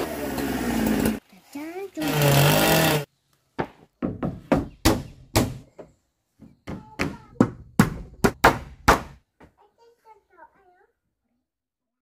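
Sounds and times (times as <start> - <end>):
hammer striking wood: 3.6 - 9.2.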